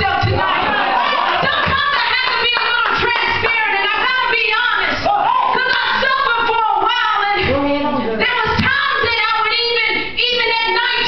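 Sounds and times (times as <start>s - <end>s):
woman singing through microphone: 0.0s - 0.4s, 1.4s - 7.6s.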